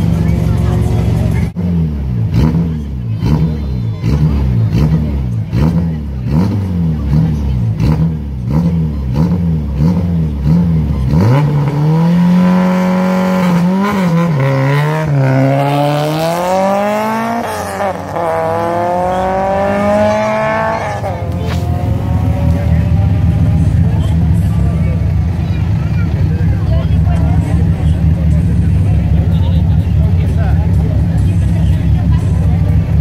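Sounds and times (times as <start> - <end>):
car accelerating hard: 0.0 - 33.0
rally car engine revving: 0.0 - 33.0.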